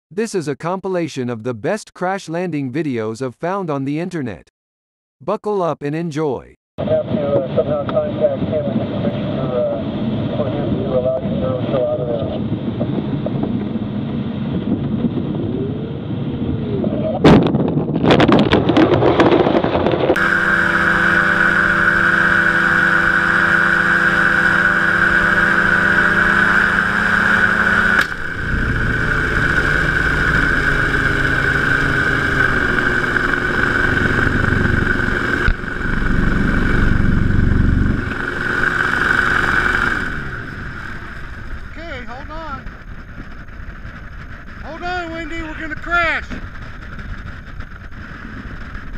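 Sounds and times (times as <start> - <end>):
engine drone and propeller whine: 6.8 - 17.2, 19.8 - 48.9
cockpit rumble and wind: 6.8 - 48.9
heavy low rumble: 24.2 - 48.9.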